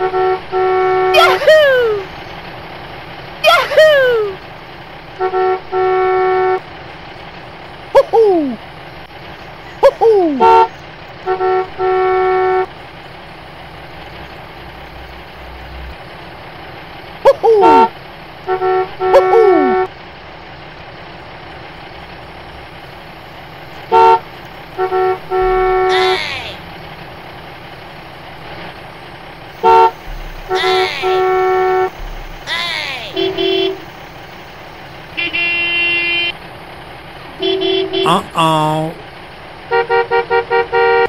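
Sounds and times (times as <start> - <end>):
vehicle horn toots: 0.0 - 1.6, 5.2 - 6.6, 10.4 - 12.7, 17.6 - 19.9, 23.9 - 24.2, 24.8 - 26.4, 29.6 - 34.0, 35.1 - 36.4, 37.4 - 38.4, 39.7 - 41.0.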